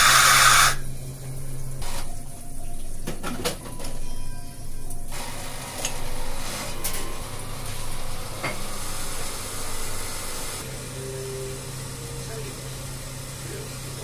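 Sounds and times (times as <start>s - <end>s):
espresso steam wand hissing: 0.0s - 0.9s, 7.6s - 14.0s.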